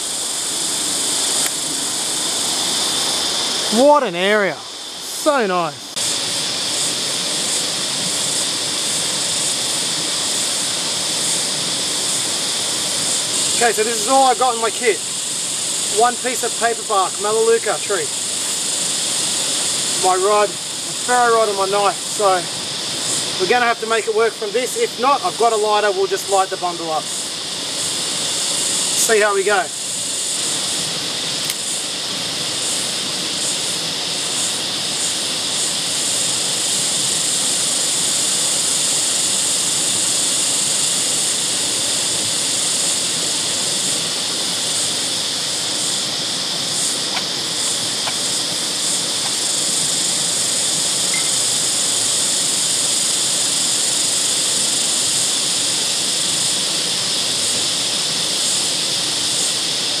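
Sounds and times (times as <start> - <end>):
high-pitched outdoor hiss: 0.0 - 60.0.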